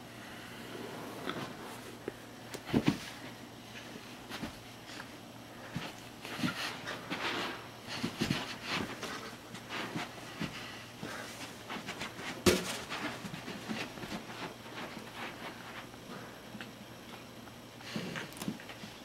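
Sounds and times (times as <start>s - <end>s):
puppy scrabbling on carpet: 5.7s - 15.9s.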